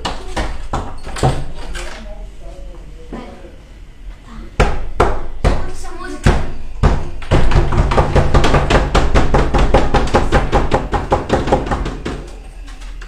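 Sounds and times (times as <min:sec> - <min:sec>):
knocking and banging on door: 0:00.0 - 0:01.6, 0:04.6 - 0:12.3.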